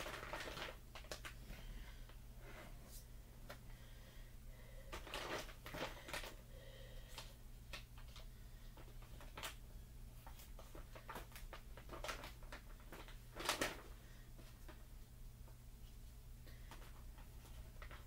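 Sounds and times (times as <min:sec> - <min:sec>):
plastic bag crinkling: 0:00.0 - 0:01.4, 0:04.9 - 0:06.4, 0:07.2 - 0:09.6, 0:10.2 - 0:14.8.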